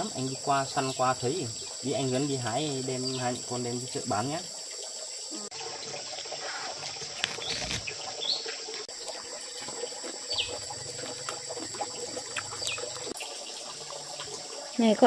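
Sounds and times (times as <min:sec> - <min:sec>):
insects droning: 0:00.0 - 0:15.0
falling bird chirps: 0:06.4 - 0:08.5.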